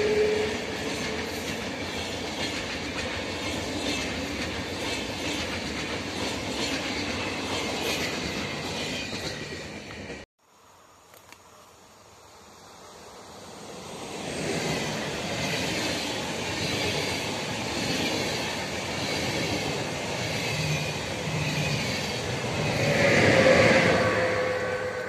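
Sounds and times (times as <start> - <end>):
train passing at speed: 0.0 - 10.3, 12.6 - 25.0
falling whine-like tones: 21.1 - 25.0.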